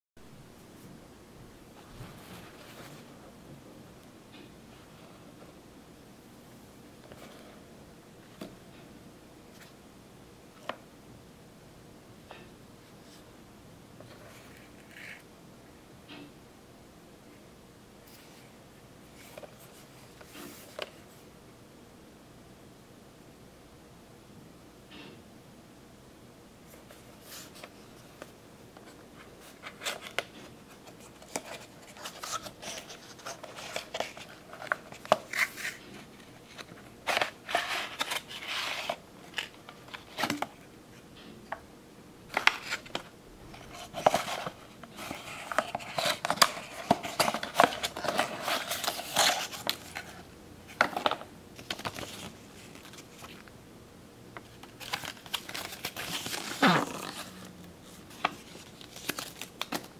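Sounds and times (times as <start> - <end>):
plastic packaging crinkling: 54.5 - 59.9.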